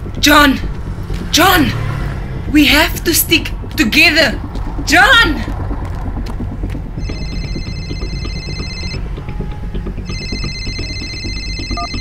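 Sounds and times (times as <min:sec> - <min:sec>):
low steady rumble: 0:00.0 - 0:12.0
mobile phone ringtone trilling: 0:07.0 - 0:09.0, 0:10.1 - 0:12.0.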